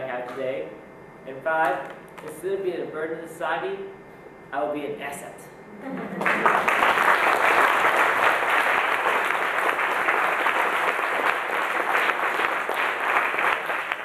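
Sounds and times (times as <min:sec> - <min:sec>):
audience applauding: 0:06.2 - 0:14.0.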